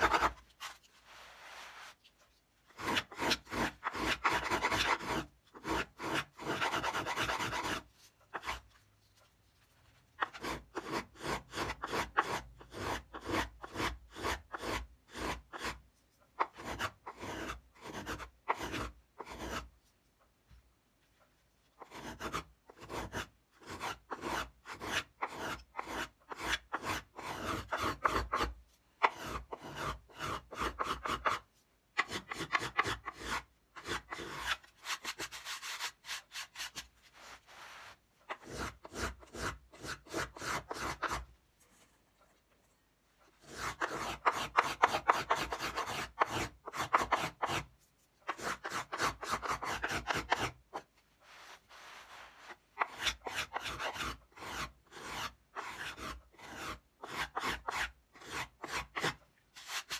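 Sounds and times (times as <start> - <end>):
plane shaving wood: 2.7 - 8.6, 16.5 - 19.7, 21.8 - 31.4, 43.4 - 47.7, 48.3 - 50.8, 52.8 - 59.2.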